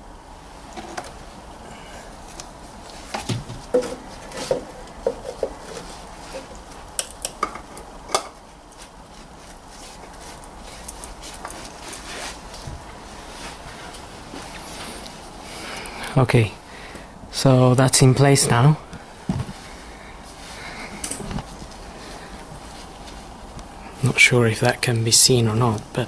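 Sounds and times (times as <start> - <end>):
faint rustling: 8.4 - 16.1, 18.1 - 25.8.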